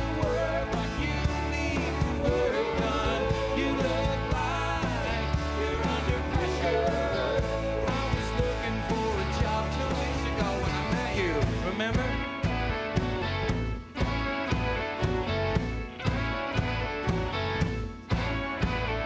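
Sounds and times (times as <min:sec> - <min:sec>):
man singing: 0:00.0 - 0:12.5
country rock band playing: 0:00.0 - 0:19.0.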